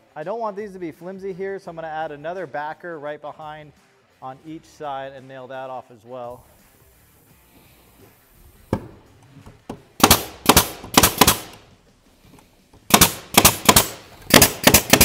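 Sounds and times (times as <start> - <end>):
nail gun shots: 10.0 - 11.7, 12.9 - 15.0.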